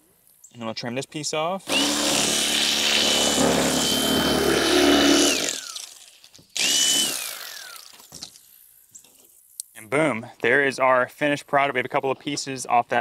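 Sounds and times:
electric knife whining: 0:01.7 - 0:08.2.

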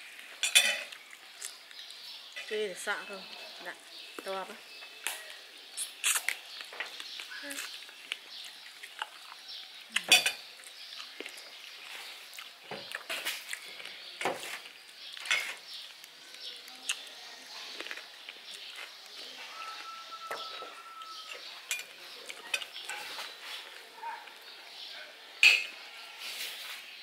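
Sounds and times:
spoons clinking on china plates: 0:00.4 - 0:00.9, 0:10.1 - 0:10.5, 0:19.6 - 0:23.2, 0:25.4 - 0:25.8
food being torn: 0:05.0 - 0:24.4.

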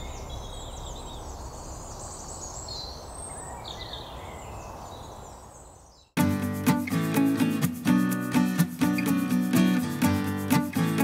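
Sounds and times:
small birds chirping and trilling: 0:00.0 - 0:06.2.

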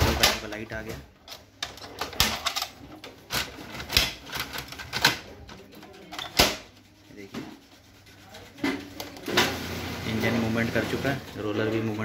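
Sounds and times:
printer mechanical clicks and clacks: 0:00.0 - 0:07.6.

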